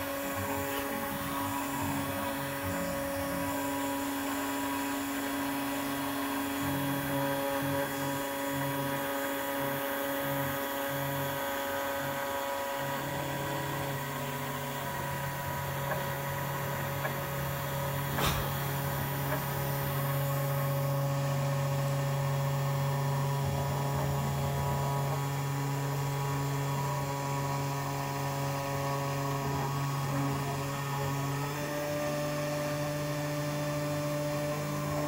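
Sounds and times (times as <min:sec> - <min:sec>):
machine motors humming and whining: 0:00.0 - 0:35.0.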